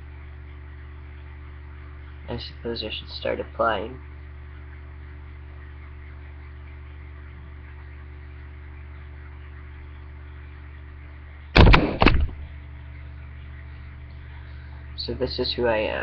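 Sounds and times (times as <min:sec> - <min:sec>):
low electrical hum: 0:00.0 - 0:16.0
sharp knocks: 0:11.6 - 0:12.4.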